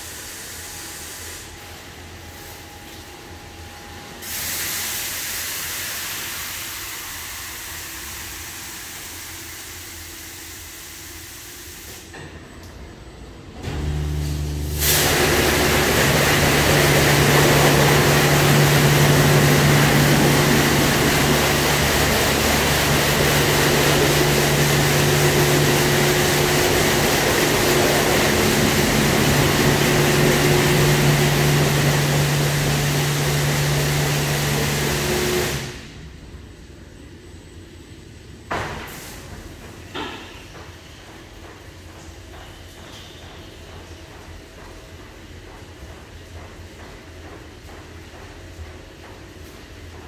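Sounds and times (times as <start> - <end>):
car wash water spray hiss: 0.0 - 2.8, 4.2 - 12.2, 13.8 - 36.1, 38.6 - 40.4
pump hum: 13.6 - 36.0.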